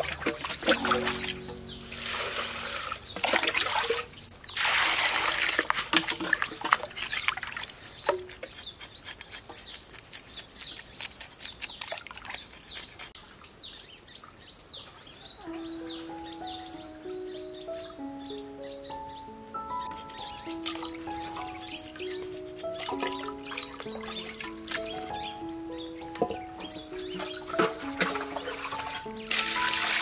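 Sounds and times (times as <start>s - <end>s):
music notes: 0.0s - 4.3s, 15.4s - 30.0s
small birds chirping: 0.0s - 4.6s, 6.3s - 29.9s
water poured splashing into water: 0.0s - 7.7s, 27.3s - 30.0s
knife scraping fish scales: 8.0s - 13.2s, 21.2s - 23.3s.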